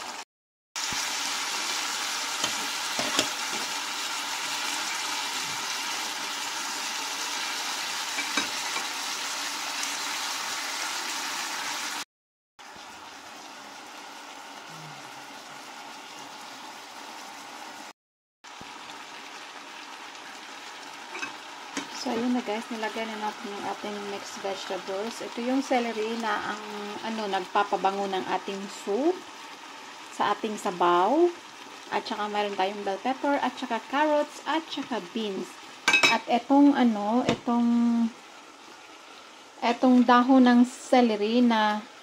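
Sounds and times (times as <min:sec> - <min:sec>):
chicken and onions sizzling in pan: 0:00.8 - 0:42.0.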